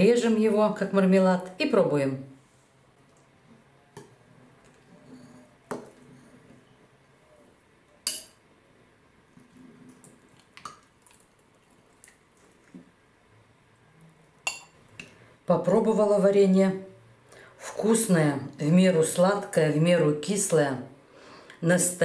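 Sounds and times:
cutlery clinking on glass bowl: 8.1s - 8.4s, 14.5s - 15.1s.

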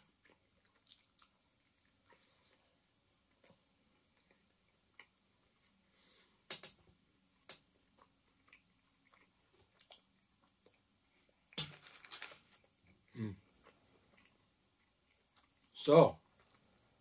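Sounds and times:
person chewing food: 0.0s - 17.0s
crackly bite: 11.5s - 12.6s.

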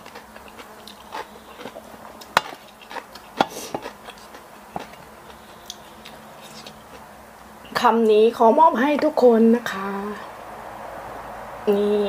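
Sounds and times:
chewing food: 0.0s - 7.1s.

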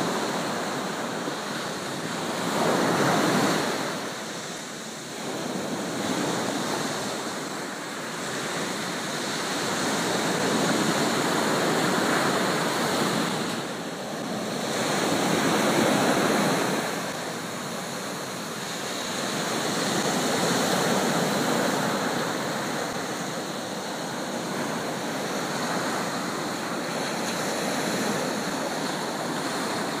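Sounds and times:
ocean surf breaking: 0.0s - 30.0s.

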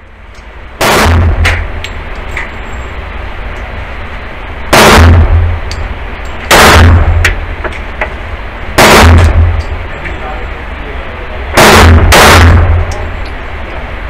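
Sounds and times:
pistol shots echoing indoors: 0.8s - 1.8s, 4.7s - 5.7s, 6.5s - 7.4s, 8.8s - 9.8s, 11.6s - 13.1s.

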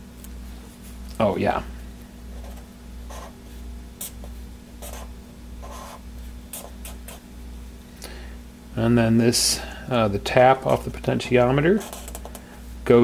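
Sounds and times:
steady low hum: 0.0s - 13.0s
marker scratching on paper: 2.4s - 3.4s, 4.0s - 7.2s, 11.8s - 12.2s.

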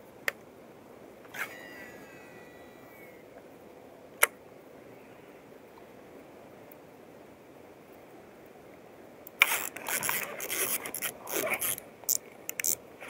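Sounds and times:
steady hiss: 0.0s - 13.0s
spinning spool whine: 1.3s - 3.3s
fishing reel click: 9.4s - 12.8s.

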